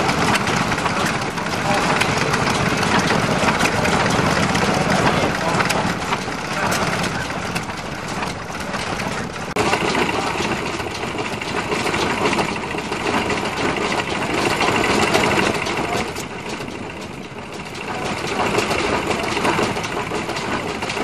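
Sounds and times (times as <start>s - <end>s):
stationary engines knocking: 0.0s - 21.0s.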